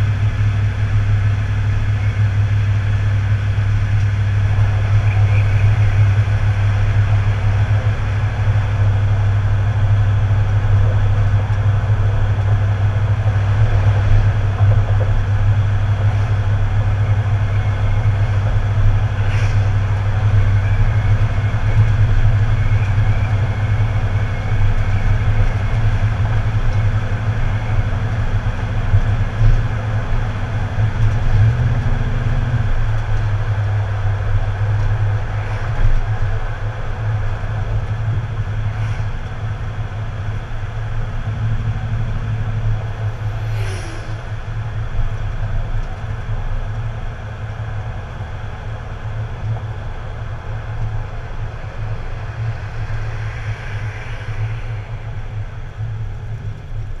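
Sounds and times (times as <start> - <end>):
road noise: 0.0 - 57.0
vehicle engine hum: 0.0 - 57.0.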